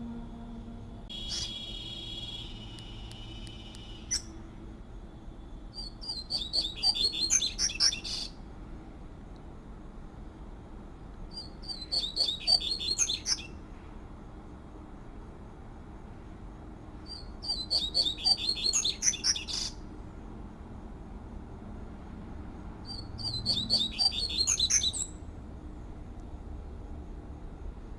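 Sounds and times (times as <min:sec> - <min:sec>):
bird singing fluty song: 0:01.1 - 0:04.4, 0:05.7 - 0:08.4, 0:11.3 - 0:13.6, 0:17.0 - 0:19.8, 0:22.8 - 0:25.2.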